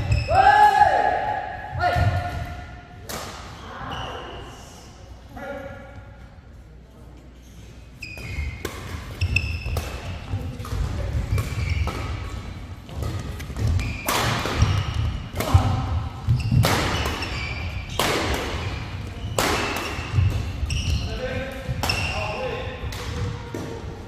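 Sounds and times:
shoe squeaks on court floor: 0:07.4 - 0:10.2, 0:11.4 - 0:12.3, 0:13.7 - 0:15.2, 0:16.3 - 0:18.0, 0:18.6 - 0:22.2
racket striking shuttlecock: 0:12.9 - 0:20.7.

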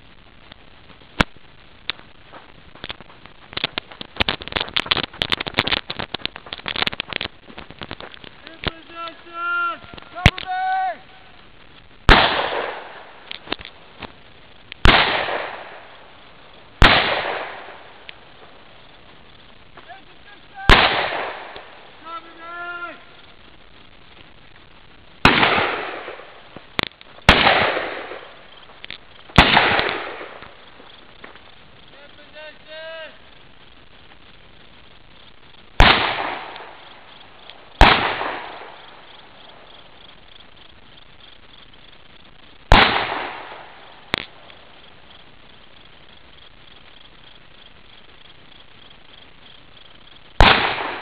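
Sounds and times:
sharp crack: 0:00.0 - 0:51.0
faint sharp clicks: 0:02.8 - 0:08.9, 0:09.8 - 0:10.5, 0:13.2 - 0:14.8, 0:26.5 - 0:27.2, 0:28.5 - 0:31.6, 0:36.4 - 0:39.3, 0:44.1 - 0:44.6
loud bangs: 0:20.6 - 0:22.4.

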